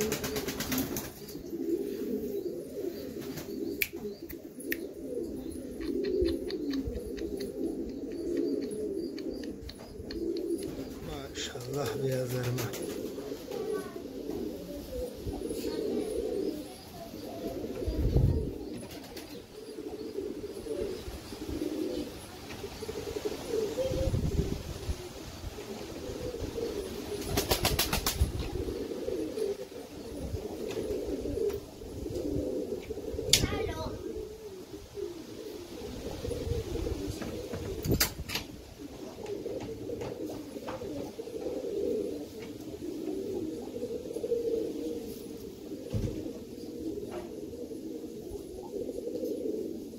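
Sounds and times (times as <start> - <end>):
pigeons cooing: 0.0 - 49.9
sharp clicks: 5.8 - 10.8.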